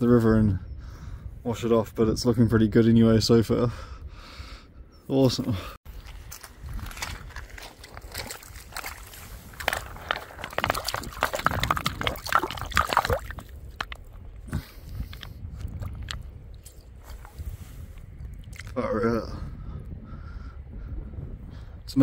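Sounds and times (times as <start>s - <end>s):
footsteps on gravel: 5.9s - 14.2s
loud water splashing: 9.6s - 13.8s.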